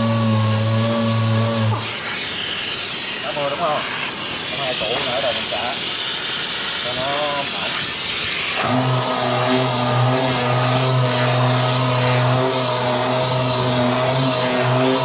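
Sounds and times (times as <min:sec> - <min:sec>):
orbital sander running: 0:00.0 - 0:15.0.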